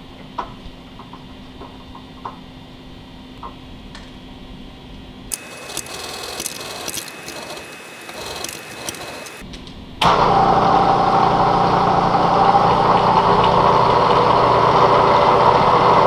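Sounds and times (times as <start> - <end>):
milling machine spindle whining: 5.3 - 9.4, 10.1 - 16.0.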